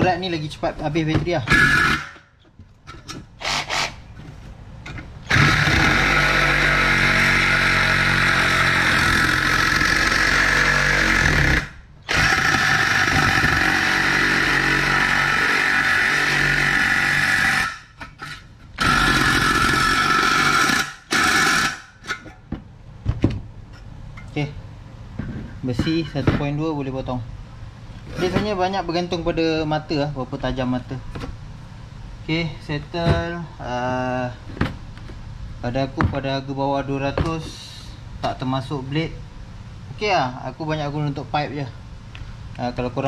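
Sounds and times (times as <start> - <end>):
reciprocating saw cutting steel: 1.5 - 2.3, 3.4 - 4.0, 5.3 - 22.2.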